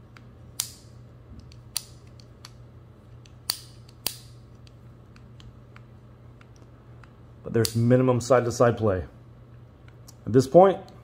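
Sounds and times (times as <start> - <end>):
sharp metal clicks: 0.6 - 2.6, 3.2 - 7.9.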